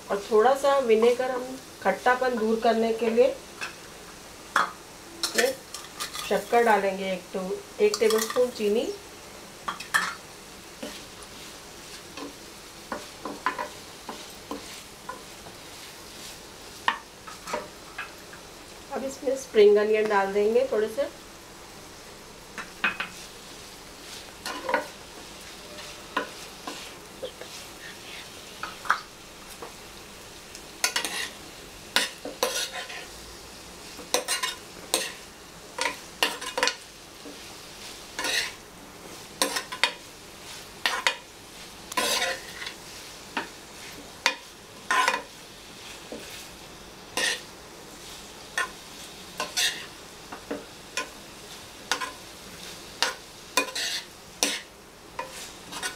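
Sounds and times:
low sizzle: 0:00.0 - 0:55.9
spatula scraping frying pan: 0:10.8 - 0:18.1, 0:24.0 - 0:29.0, 0:30.8 - 0:33.2, 0:34.0 - 0:46.5, 0:47.1 - 0:55.9.

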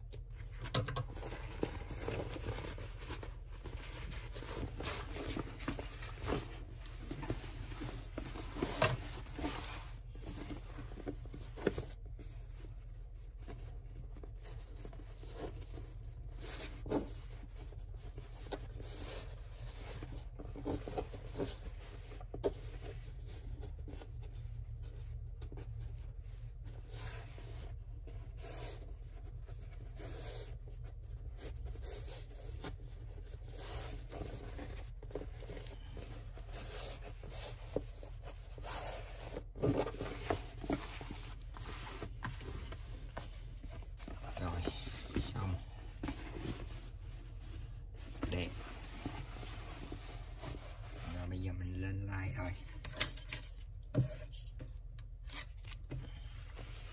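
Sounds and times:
fabric rustling and rubbing: 0:12.0 - 0:51.4.

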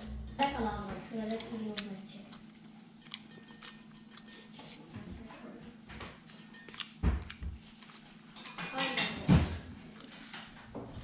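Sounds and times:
faint steady hum: 0:00.0 - 0:11.0
fork scraping on plate: 0:03.0 - 0:04.8.

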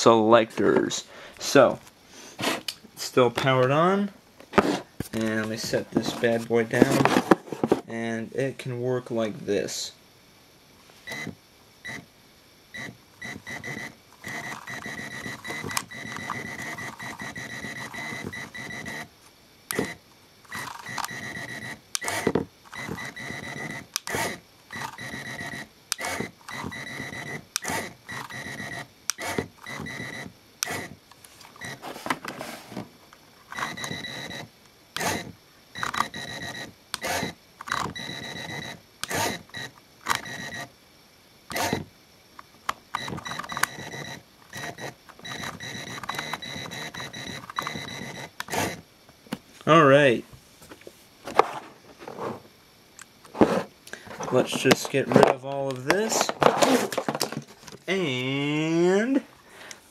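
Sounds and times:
electric motor whirring: 0:12.8 - 0:19.1, 0:19.7 - 0:31.0, 0:33.5 - 0:40.7, 0:41.5 - 0:41.9, 0:42.9 - 0:48.8.

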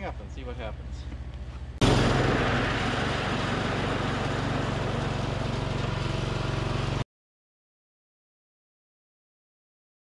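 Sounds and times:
riding mower engine running: 0:01.8 - 0:07.0.

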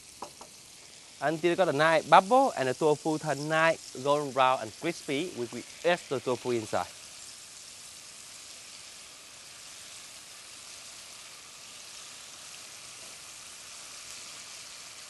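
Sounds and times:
tofu deep-frying in oil: 0:00.0 - 0:15.0.

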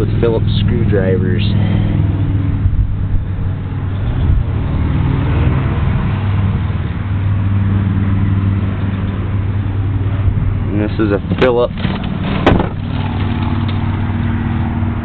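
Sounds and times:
low mechanical hum: 0:00.0 - 0:04.9.

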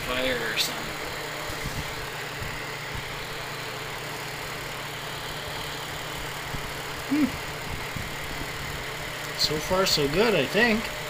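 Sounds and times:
air rushing through grille: 0:00.0 - 0:10.8
fan heater motor hum: 0:00.0 - 0:11.0.

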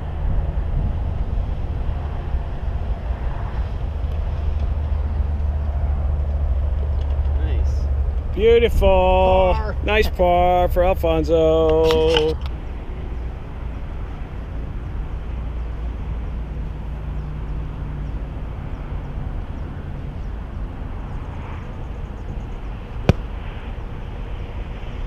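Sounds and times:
golf club striking ball: 0:23.0 - 0:23.4.

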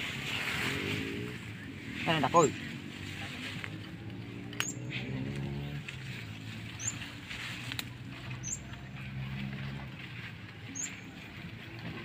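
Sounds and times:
leaves and brush rustling: 0:00.0 - 0:12.0
low motor hum: 0:00.0 - 0:12.0.

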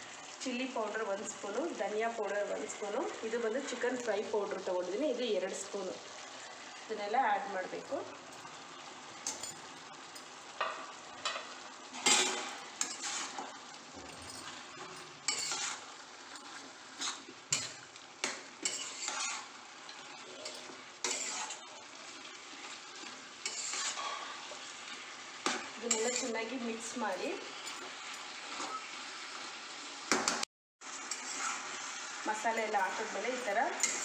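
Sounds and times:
food sizzling in a pan: 0:00.0 - 0:34.0
metal spoon scraping a pan: 0:10.6 - 0:21.7, 0:22.5 - 0:24.7, 0:25.4 - 0:26.6, 0:31.0 - 0:34.0.

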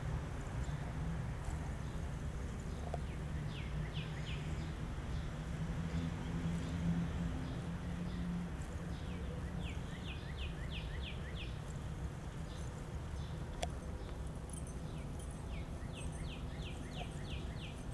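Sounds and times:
songbird singing whistled notes: 0:02.7 - 0:04.8, 0:09.0 - 0:11.8, 0:14.2 - 0:17.9.

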